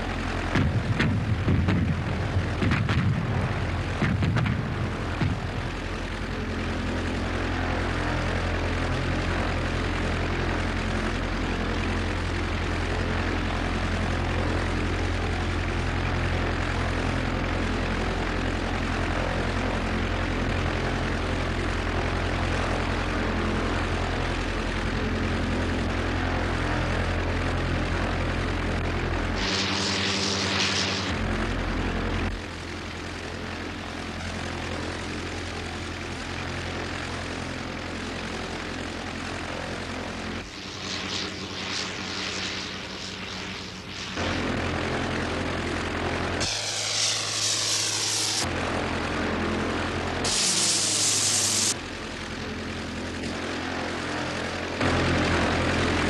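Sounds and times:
propeller engine droning: 0.0 - 56.0
harsh hissing engine noise: 26.3 - 56.0.

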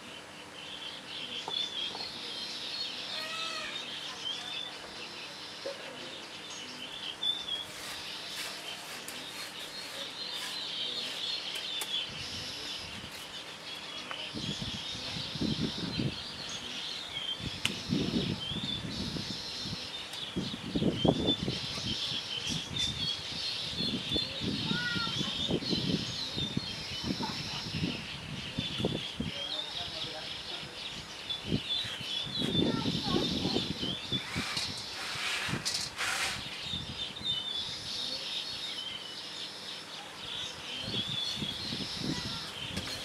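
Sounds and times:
songbirds chirping: 0.0 - 43.0.

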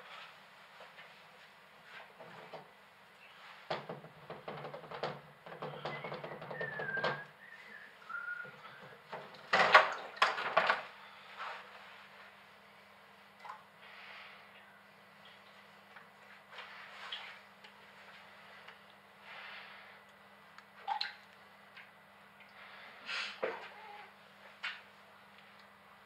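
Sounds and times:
clattering noises: 1.9 - 2.8, 3.6 - 11.6.

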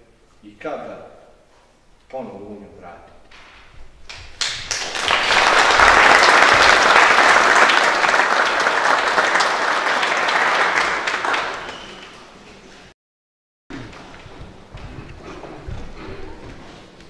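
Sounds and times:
audience applauding: 4.1 - 12.4.

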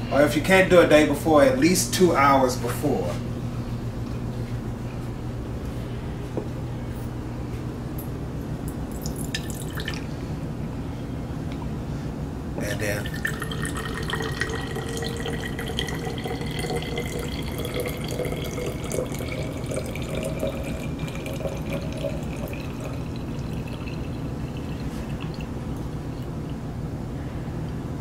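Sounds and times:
liquid pouring into a bottle: 8.9 - 10.1, 12.9 - 26.6.

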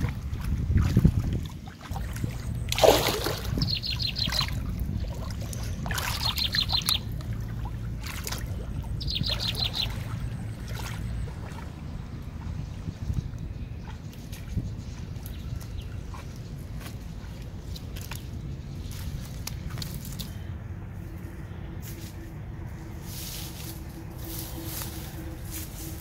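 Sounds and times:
shallow water splashing: 0.0 - 20.5
low steady hum: 0.0 - 26.0
bird trilling: 2.4 - 4.7, 5.6 - 7.2, 8.7 - 11.4.

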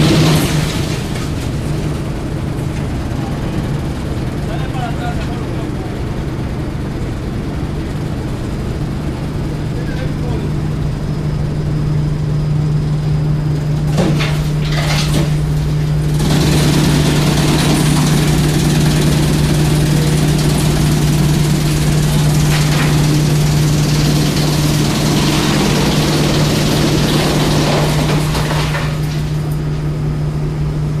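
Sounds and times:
wood chipper humming: 0.0 - 31.0
rushing grinding noise: 13.4 - 29.4.

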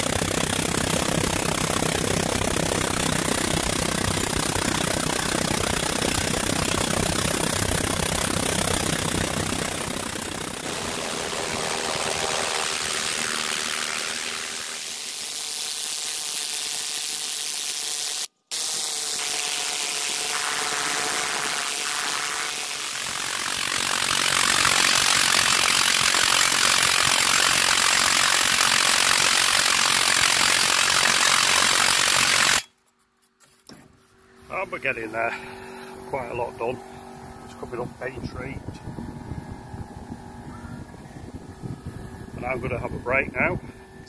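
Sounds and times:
needle scaler hammering metal: 10.6 - 32.7.

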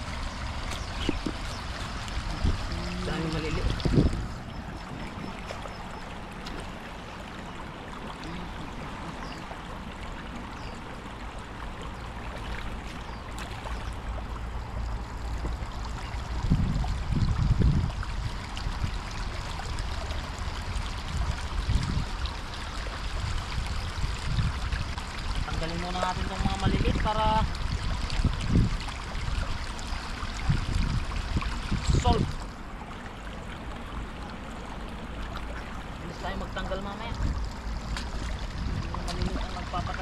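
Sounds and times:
low rumbling bumps: 0.0 - 7.2, 35.1 - 40.0
river running over stones: 0.0 - 40.0.

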